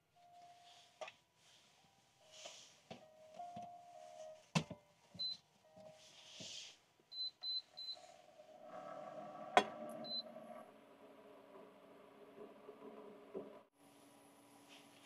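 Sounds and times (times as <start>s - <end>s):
soft background music: 0.1s - 7.9s
cooktop beeps: 9.6s - 10.3s.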